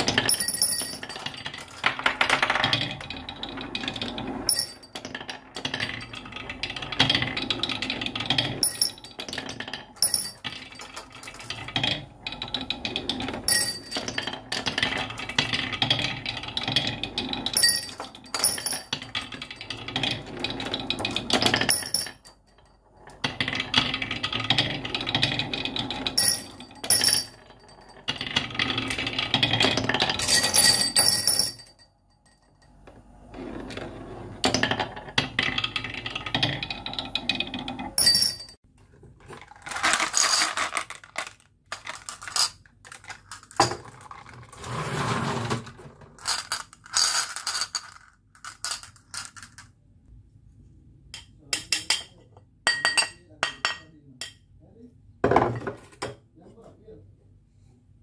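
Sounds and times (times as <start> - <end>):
marbles rolling down wooden track: 0.0 - 31.6, 33.3 - 38.4, 39.2 - 49.7
marbles clinking in bowl: 39.4 - 44.6, 46.2 - 49.6.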